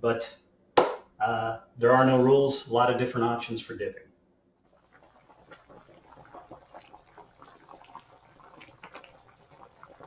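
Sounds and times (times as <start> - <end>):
water boiling in a pot: 4.6 - 10.0.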